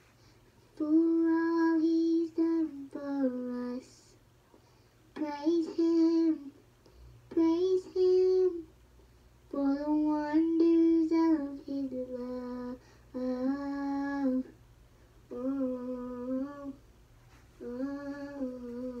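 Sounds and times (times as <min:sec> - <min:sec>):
girl singing wordless tune: 0:00.2 - 0:08.8, 0:09.4 - 0:19.0.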